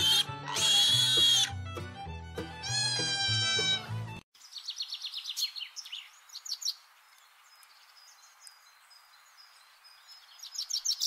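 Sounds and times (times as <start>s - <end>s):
small birds chirping: 4.4s - 11.0s.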